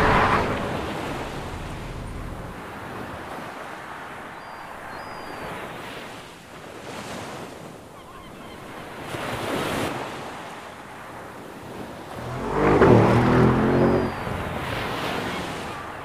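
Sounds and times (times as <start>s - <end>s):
loud car engine: 0.0s - 2.8s, 12.1s - 15.3s
surf washing on rocky shore: 0.0s - 7.6s.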